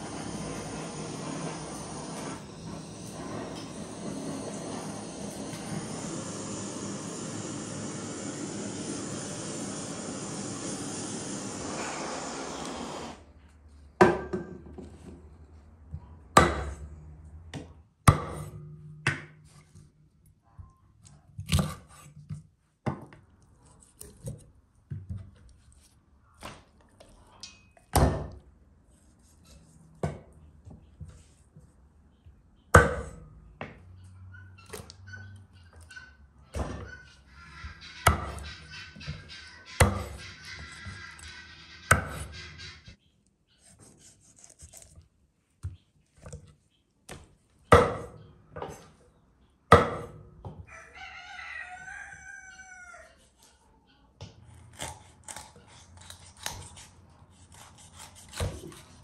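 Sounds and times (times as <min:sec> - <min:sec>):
steady hiss: 0:00.0 - 0:13.2.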